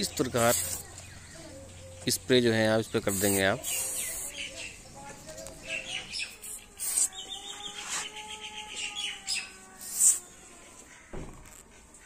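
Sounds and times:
birds chirping: 0.0s - 12.0s
pump spray squirting: 0.1s - 1.0s, 3.0s - 4.5s, 6.3s - 7.2s, 9.8s - 10.2s.

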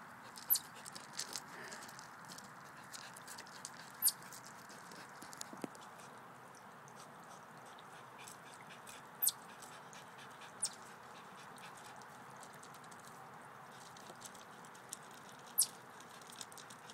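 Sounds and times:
dog paws scrabbling on gravel: 0.4s - 6.1s.

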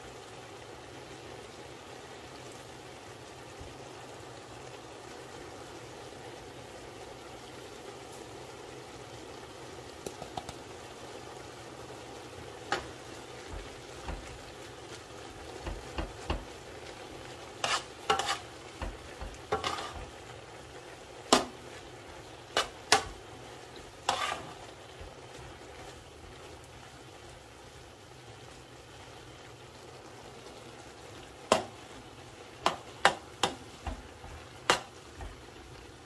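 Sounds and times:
faint steady hiss: 0.0s - 36.0s
spoon mixing wet mince: 17.6s - 20.2s, 24.1s - 24.7s.

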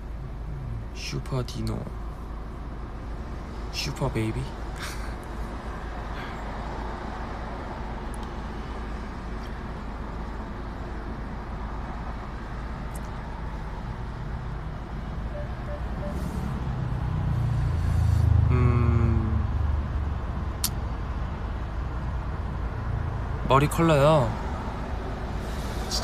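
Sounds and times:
road noise inside moving car: 0.0s - 26.0s
heavy vehicle passing: 15.1s - 19.9s
short falling whine: 15.3s - 16.6s.

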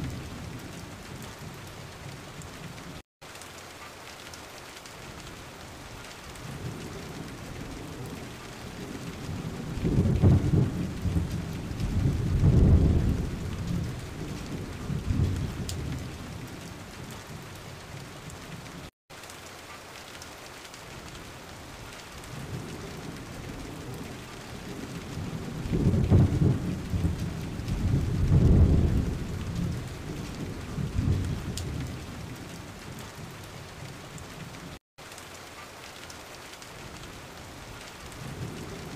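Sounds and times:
rain hiss: 0.0s - 38.9s
thunder rolling: 6.5s - 16.8s, 22.4s - 32.4s.

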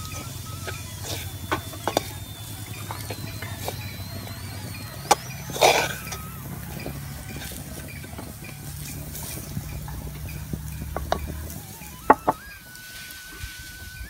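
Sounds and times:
wooden spoon stirring in clay pot: 0.0s - 14.0s.

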